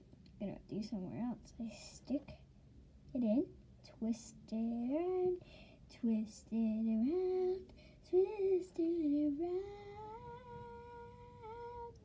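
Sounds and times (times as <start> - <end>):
girl singing: 3.2 - 12.0.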